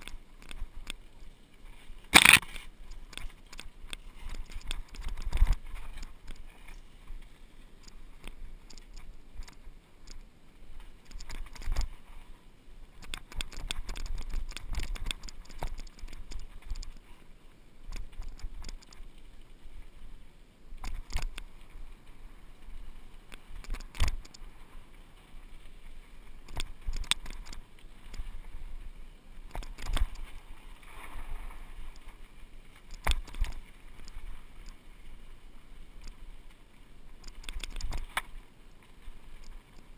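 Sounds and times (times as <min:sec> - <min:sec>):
mountain bike knocking and rattling: 0:02.1 - 0:06.4.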